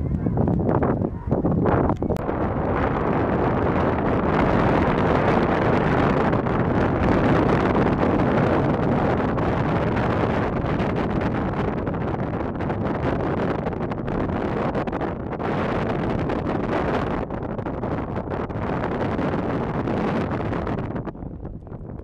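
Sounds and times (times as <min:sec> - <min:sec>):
wind on microphone: 0:00.0 - 0:22.0.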